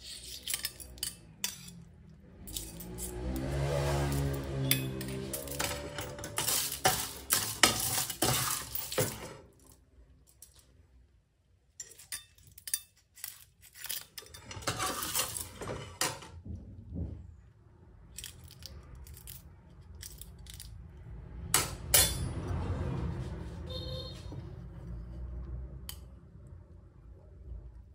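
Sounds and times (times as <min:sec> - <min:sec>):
ladle scraping pan: 0:03.9 - 0:09.4, 0:13.9 - 0:16.3.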